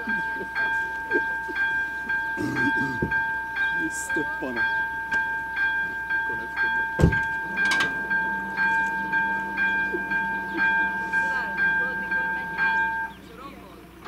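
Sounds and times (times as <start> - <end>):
electronic warning bell ringing: 0.0 - 14.0
low motor hum: 0.0 - 14.0
loud mechanical clunk: 7.0 - 8.2.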